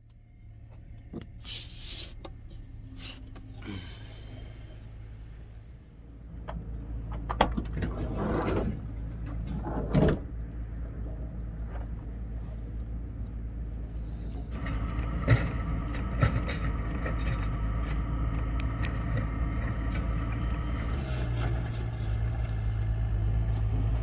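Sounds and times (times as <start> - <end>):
steady low hum: 0.0 - 7.1, 10.3 - 24.0.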